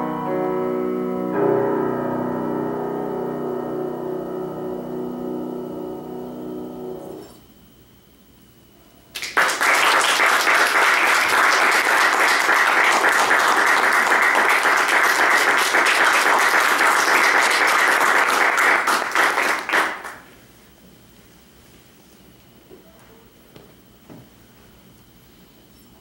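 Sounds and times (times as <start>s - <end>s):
audience applauding: 9.1s - 20.3s.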